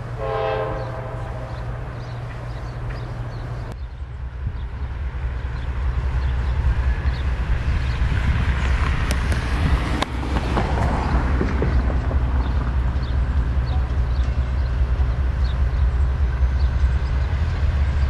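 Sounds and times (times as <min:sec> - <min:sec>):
diesel locomotive engine rumble: 0:00.0 - 0:18.0.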